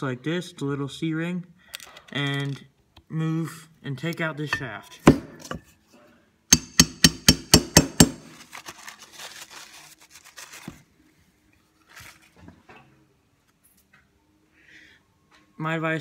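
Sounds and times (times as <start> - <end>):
hammer striking metal shaft: 6.5 - 8.3
metal parts clicking and knocking: 6.5 - 8.3.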